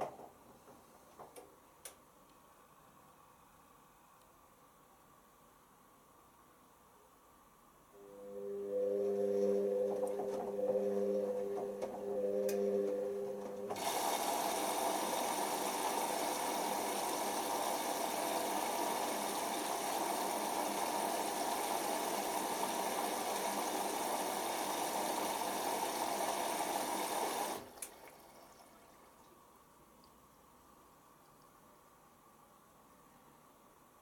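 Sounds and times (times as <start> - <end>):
water rushing into washing machine: 13.6 - 29.4.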